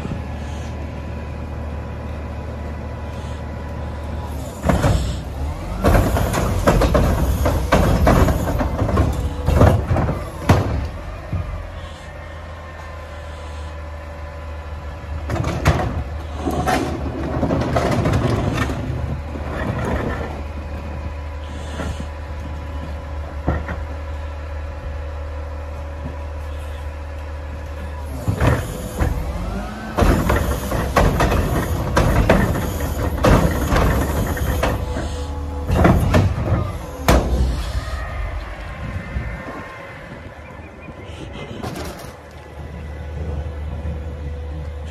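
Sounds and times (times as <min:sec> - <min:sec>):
garbage truck engine humming: 0:00.0 - 0:44.9
carts knocking and clattering: 0:04.6 - 0:11.6, 0:15.2 - 0:21.1, 0:28.2 - 0:38.2, 0:41.3 - 0:42.4.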